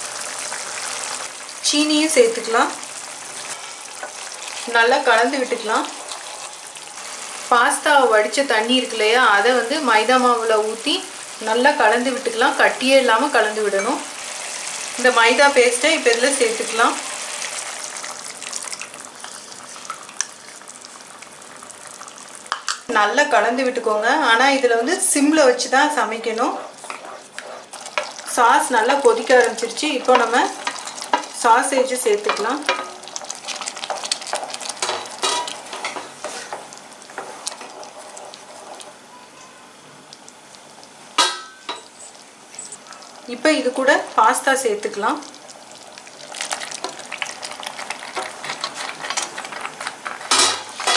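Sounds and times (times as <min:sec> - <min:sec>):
sauce bubbling and sizzling: 0:00.0 - 0:22.9, 0:24.5 - 0:50.9
spatula scraping a pan: 0:03.4 - 0:04.2, 0:26.4 - 0:28.3.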